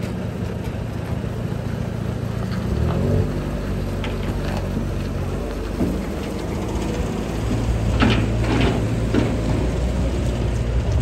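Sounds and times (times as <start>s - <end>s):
diesel truck engine running: 0.0s - 11.0s
metallic clanks and knocks: 5.7s - 10.0s.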